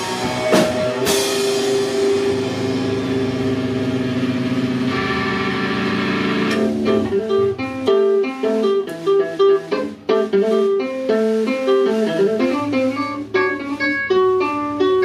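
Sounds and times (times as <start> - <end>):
cymbals ringing: 0.0 - 7.9
electric guitar single notes: 0.0 - 15.0
live rock band playing: 0.0 - 15.0.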